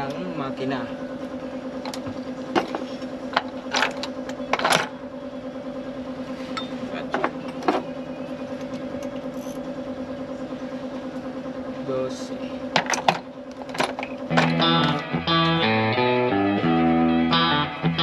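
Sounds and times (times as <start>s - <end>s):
diesel engine idling: 0.0s - 18.0s
sharp knocks in engine bay: 12.7s - 15.0s.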